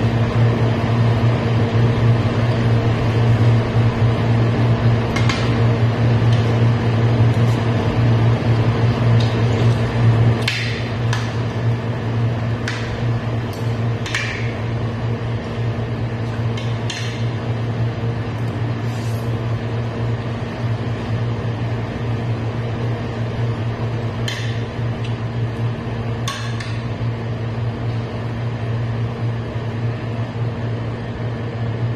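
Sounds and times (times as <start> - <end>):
steady low hum: 0.0 - 31.9.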